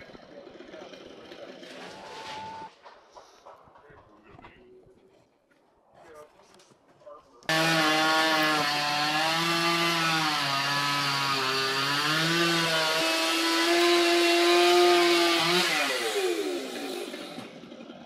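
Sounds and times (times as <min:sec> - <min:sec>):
chainsaw running at high revs: 0:07.5 - 0:18.0.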